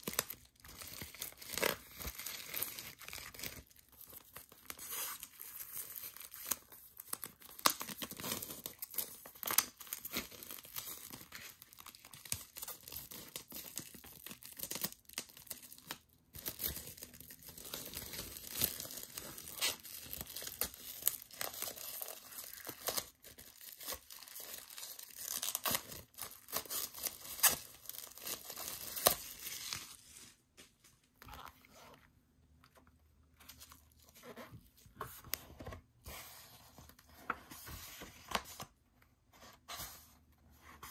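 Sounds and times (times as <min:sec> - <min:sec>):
plastic shrink wrap crinkling: 0:00.0 - 0:31.6.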